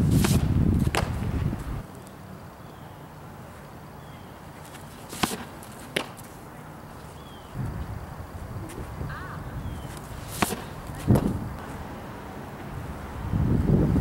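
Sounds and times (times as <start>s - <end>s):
softball popping into mitt: 0.2s - 1.2s, 5.1s - 6.3s, 10.3s - 11.4s.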